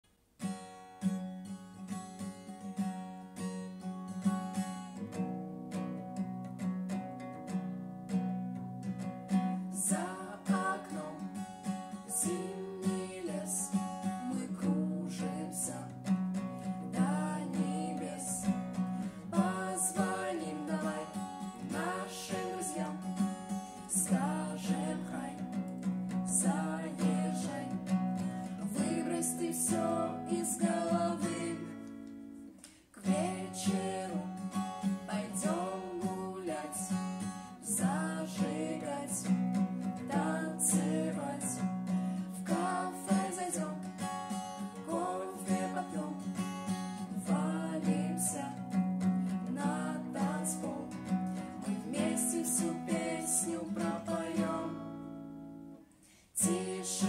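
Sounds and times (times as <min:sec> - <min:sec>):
acoustic guitar strumming: 0:00.4 - 0:57.0
people singing: 0:09.7 - 0:31.9, 0:33.0 - 0:55.3, 0:56.4 - 0:57.0.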